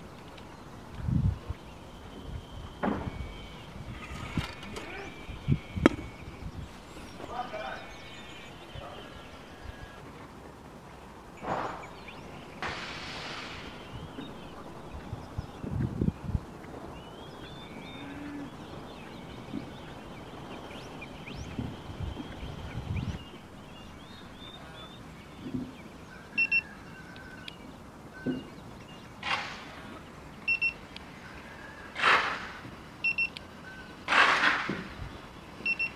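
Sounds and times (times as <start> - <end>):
steady low hum: 0.0 - 34.1
bursts of hiss: 11.4 - 15.0, 31.0 - 33.0
thermometer double beeps: 26.4 - 26.6, 30.5 - 30.8, 33.0 - 33.9, 35.6 - 35.9.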